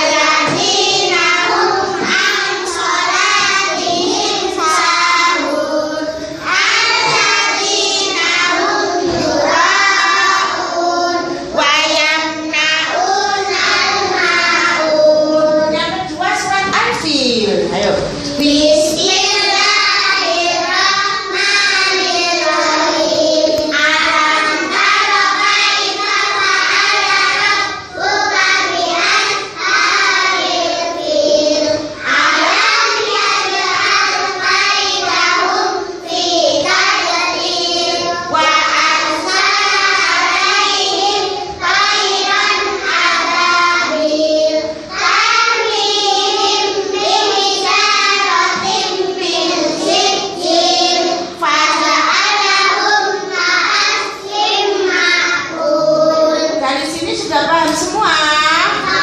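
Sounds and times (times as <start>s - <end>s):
children chanting in unison: 0.0s - 16.6s, 18.1s - 59.0s.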